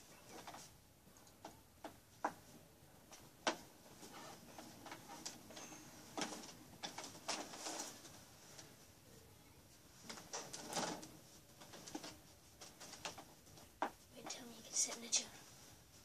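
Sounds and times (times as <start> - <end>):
clicks and knocks of handling things: 3.1 - 8.7, 10.0 - 14.0.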